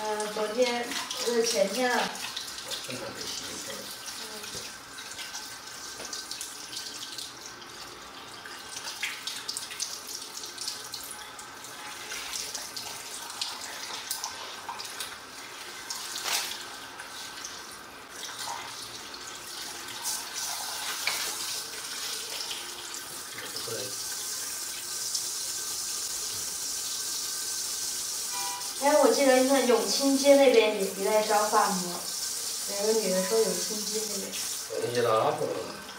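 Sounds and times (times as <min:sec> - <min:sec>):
water splashing and dripping: 0:00.0 - 0:23.8
water spraying into basin: 0:00.0 - 0:35.8.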